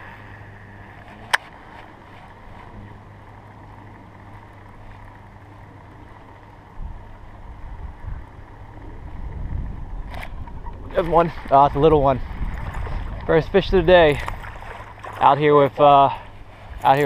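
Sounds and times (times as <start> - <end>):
wind buffeting microphone: 6.7 - 15.3.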